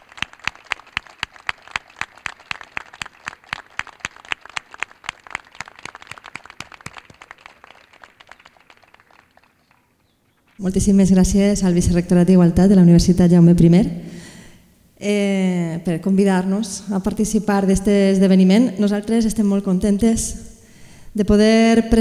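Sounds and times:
small audience applauding: 0.0s - 10.6s.

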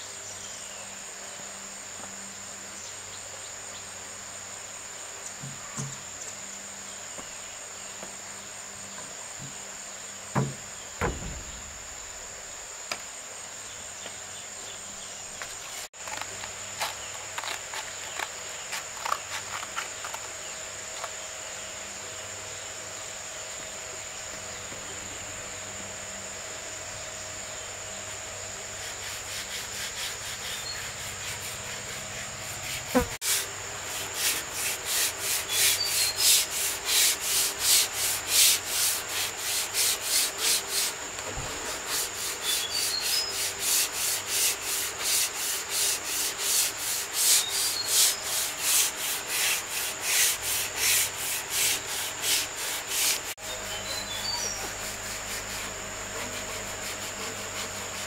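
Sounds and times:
high insect trill: 0.0s - 58.0s
knocks on wood: 10.3s - 12.0s
sanding on wood: 28.8s - 53.4s, 54.2s - 58.0s.

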